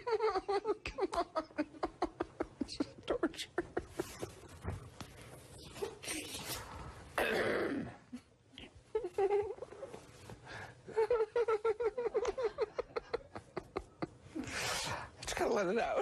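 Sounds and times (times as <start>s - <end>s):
man giggling: 0.0s - 4.5s, 10.9s - 14.4s.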